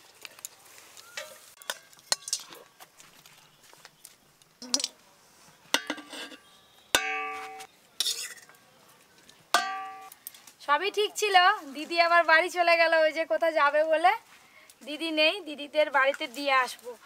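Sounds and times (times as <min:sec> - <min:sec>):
spoon clinking against metal pot: 0:01.2 - 0:02.6, 0:07.0 - 0:08.5, 0:09.6 - 0:10.1
metal struck ringing: 0:07.0 - 0:07.7, 0:09.6 - 0:10.1.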